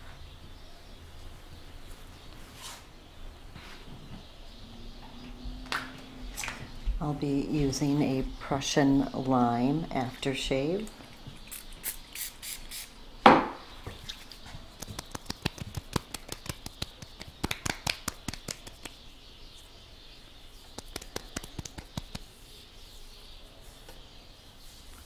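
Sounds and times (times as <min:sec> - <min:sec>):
light pats on face: 0:14.7 - 0:19.1, 0:20.6 - 0:22.5
hands slapping face: 0:14.8 - 0:19.0, 0:20.8 - 0:22.3.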